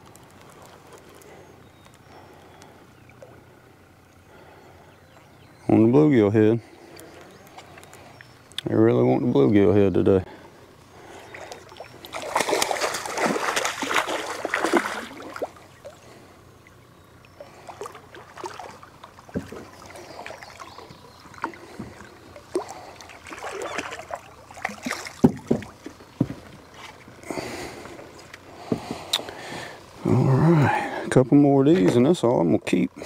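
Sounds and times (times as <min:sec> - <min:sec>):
fish thrashing and splashing: 0:11.0 - 0:29.4.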